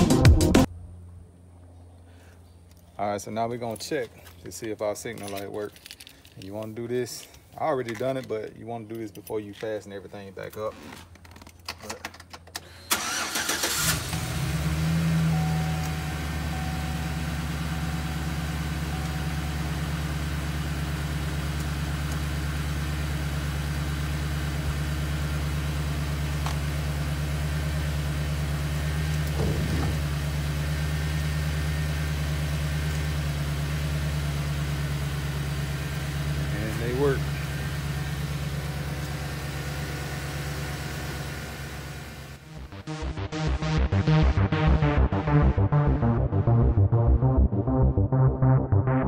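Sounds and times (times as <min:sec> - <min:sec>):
pickup engine starting and idling: 0:12.2 - 0:47.6.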